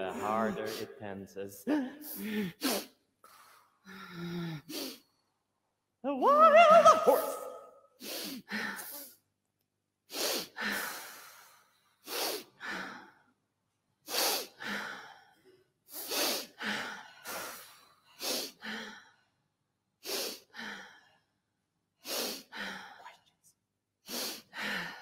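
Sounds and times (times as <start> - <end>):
forceful rhythmic breathing: 10.1 - 13.3, 14.0 - 19.2, 20.0 - 21.2, 22.0 - 23.2, 24.0 - 25.0.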